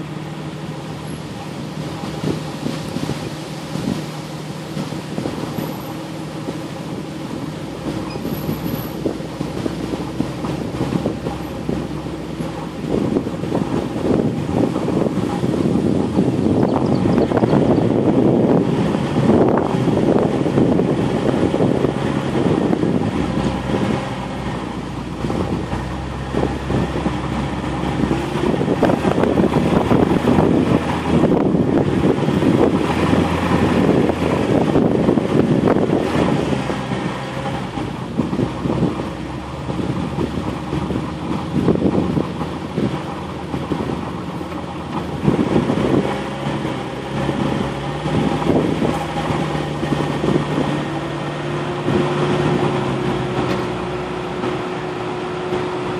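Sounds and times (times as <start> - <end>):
off-road vehicle engine: 0.0 - 55.9
vehicle body rattling and knocking: 25.1 - 51.1.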